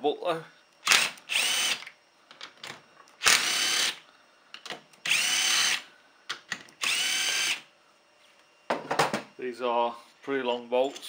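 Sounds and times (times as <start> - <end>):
power drill whining: 0.8 - 1.9, 3.2 - 4.0, 5.0 - 5.8, 6.8 - 7.6.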